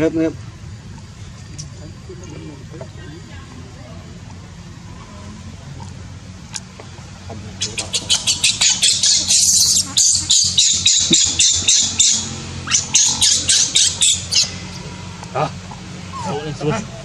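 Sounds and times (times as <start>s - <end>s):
baby monkey screaming: 7.6s - 14.8s.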